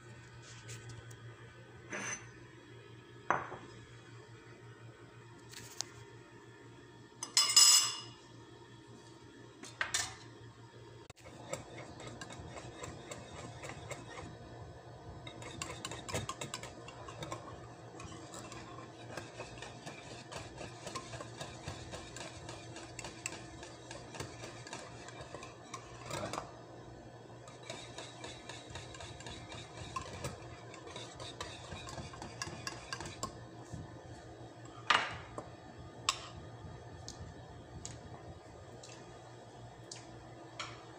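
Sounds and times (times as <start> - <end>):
whisk rattling in a bowl: 11.2 - 33.8.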